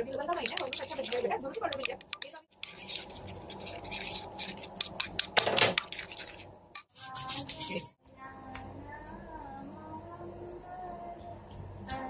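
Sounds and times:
metal spoon scraping a bowl: 0:00.0 - 0:07.9.

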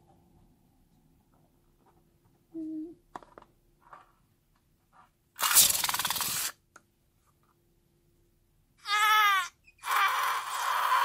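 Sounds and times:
balloon sputtering flutter: 0:05.4 - 0:06.6.

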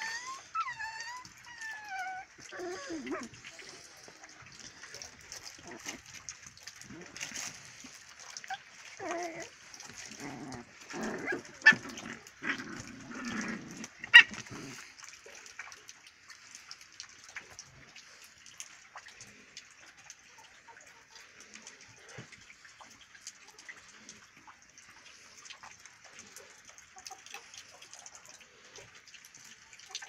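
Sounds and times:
puppies whimpering and yipping: 0:00.0 - 0:06.0, 0:08.1 - 0:12.4, 0:14.0 - 0:14.8.

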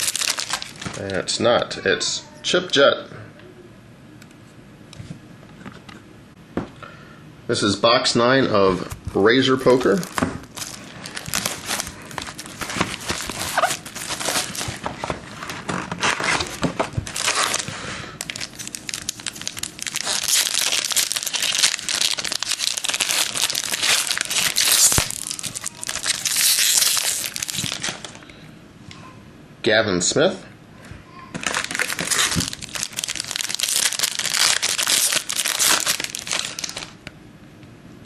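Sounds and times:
foil pack crinkling and tearing: 0:00.0 - 0:01.2, 0:09.8 - 0:28.2, 0:31.4 - 0:37.0.

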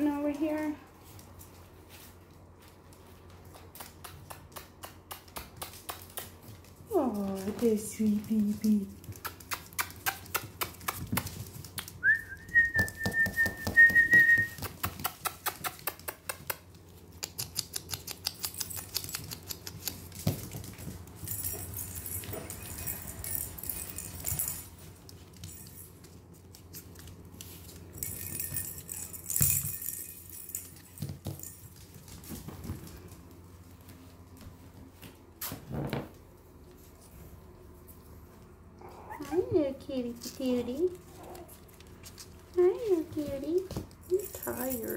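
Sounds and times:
soft scratchy rustling: 0:00.0 - 0:03.5
puppy claws clicking on vinyl floor: 0:00.0 - 0:44.9.

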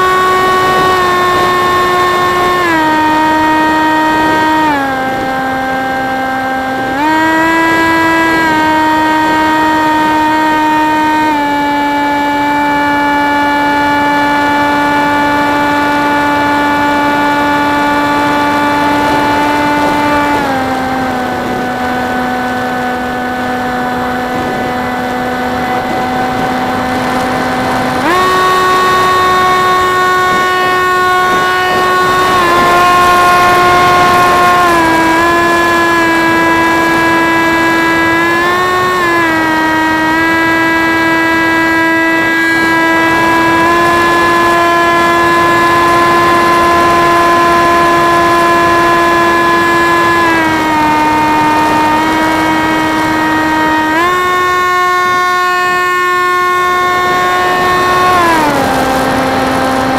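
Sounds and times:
model plane motor whining: 0:00.0 - 0:59.9.

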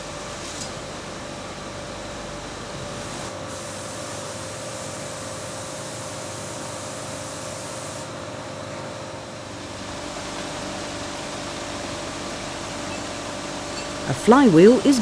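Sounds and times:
air hiss: 0:03.1 - 0:08.1.

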